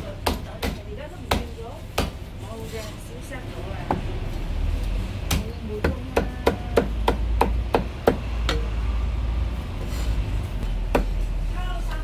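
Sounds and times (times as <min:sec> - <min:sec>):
cleaver chopping on wooden block: 0:05.3 - 0:08.7.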